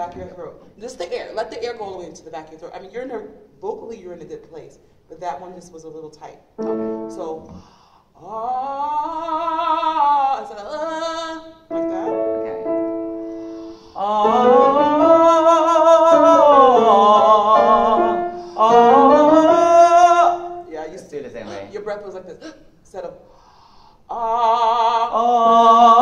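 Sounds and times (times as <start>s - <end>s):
piano chords: 6.6s - 7.6s, 11.7s - 21.7s
person singing sustained vowels: 8.2s - 12.7s, 13.6s - 20.7s, 24.1s - 26.0s.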